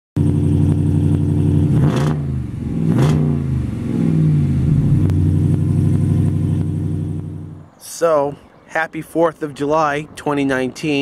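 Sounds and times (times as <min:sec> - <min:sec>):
truck engine idling and revving: 0:00.2 - 0:07.8.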